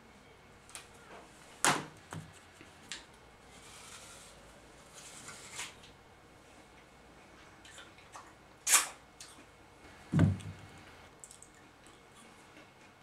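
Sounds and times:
dull low thump: 10.1 - 10.7.

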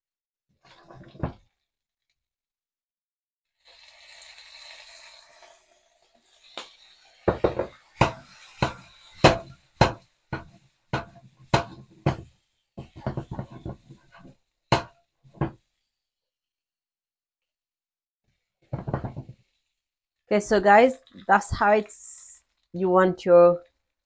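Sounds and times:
utensil knocking on a wok: 7.3 - 15.6, 18.7 - 19.4.

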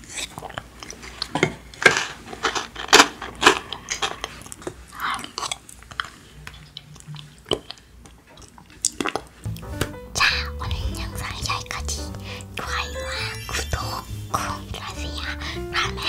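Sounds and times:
chewing crunchy chocolates: 0.0 - 9.5.

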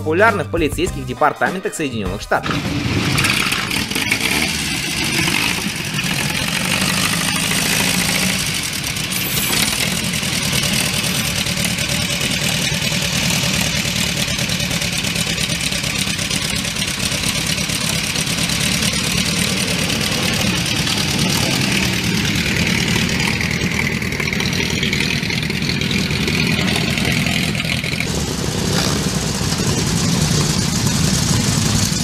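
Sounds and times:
motorcycle engine idling: 2.4 - 32.0.

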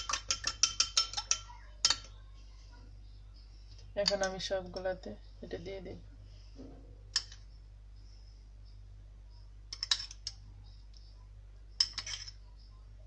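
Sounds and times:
spoon clicking on ceramic bowl: 0.0 - 2.1, 7.1 - 7.4, 9.7 - 10.4, 11.8 - 12.4
faint low hum: 0.0 - 13.0.

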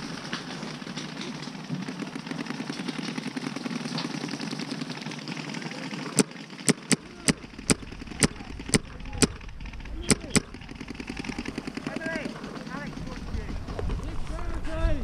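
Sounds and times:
distant paintball rapid fire: 0.0 - 14.6
close paintball shots: 6.0 - 12.7.

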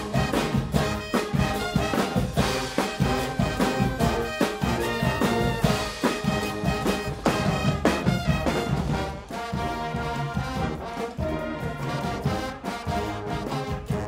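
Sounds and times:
drum kit with cymbal crashes: 0.0 - 9.5
brass band playing: 0.0 - 14.0.

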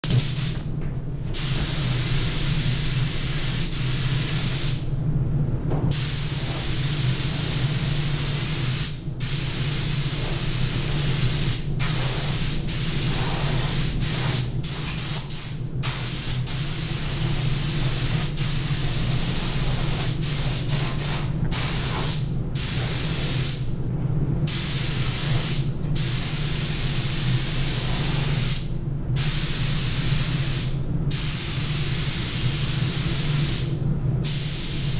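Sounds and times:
steady low hum: 0.0 - 34.9
paint spray gun hissing: 5.9 - 23.6, 34.3 - 34.9.

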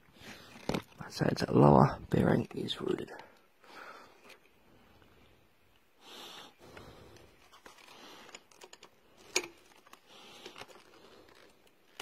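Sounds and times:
light clicks and rustling: 6.7 - 12.0.

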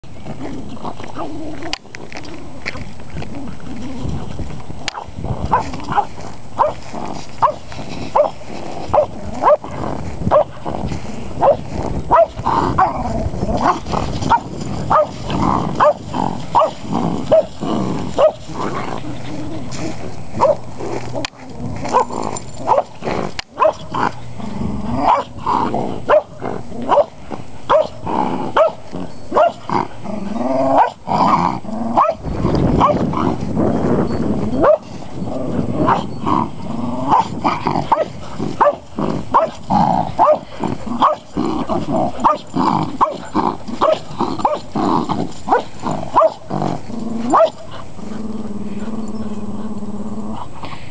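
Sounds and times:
dogs growling: 0.2 - 50.9
dogs barking sharply: 40.2 - 41.3, 45.5 - 46.4.

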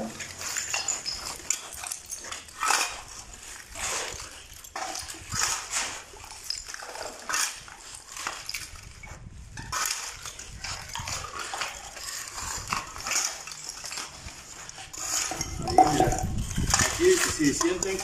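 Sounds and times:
shovels scraping concrete floor: 0.0 - 18.0
rubbish rattling: 9.6 - 18.0.

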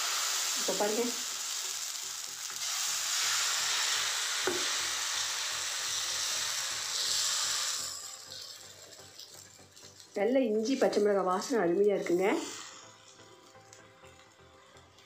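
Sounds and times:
batter sizzling on a hot griddle: 0.0 - 10.9.

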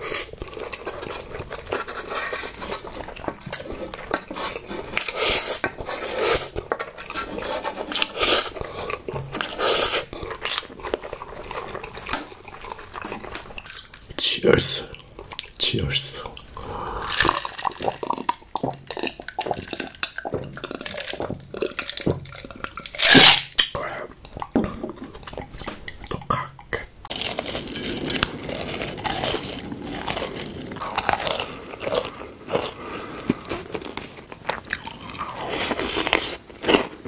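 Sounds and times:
crunching and chewing: 0.0 - 37.0
person gulping water: 14.8 - 27.1.

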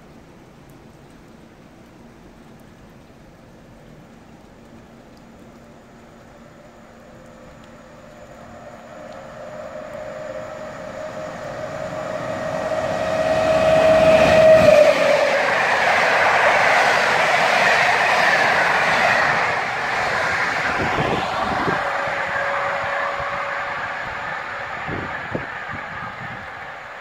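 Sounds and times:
electric locomotive whine: 5.4 - 27.0
train wheels rumbling on rails: 7.4 - 27.0.

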